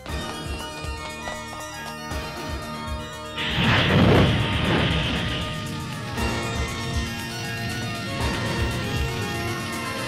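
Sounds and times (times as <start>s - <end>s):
held music chords: 0.0s - 10.0s
low pulsing beats: 3.2s - 10.0s.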